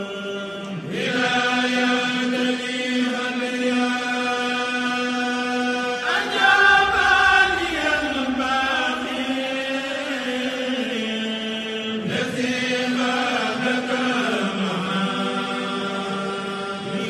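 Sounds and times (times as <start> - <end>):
person chanting religious verses: 0.0 - 17.0.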